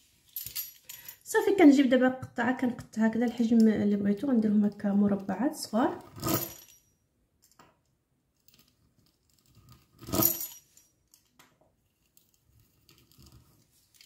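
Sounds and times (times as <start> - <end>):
sharp metallic clink: 6.2 - 6.9.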